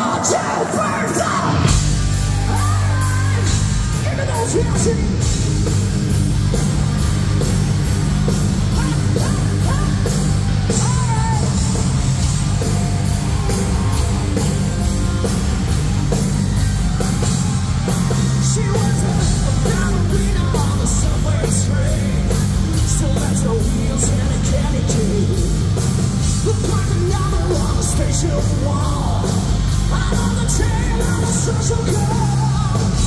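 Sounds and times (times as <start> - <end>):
singer's vocals: 0.0 - 5.3, 8.7 - 11.8, 18.1 - 25.7, 26.3 - 33.0
distorted electric guitars: 0.0 - 33.0
bass guitar: 1.1 - 33.0
steady drum beat: 1.4 - 33.0.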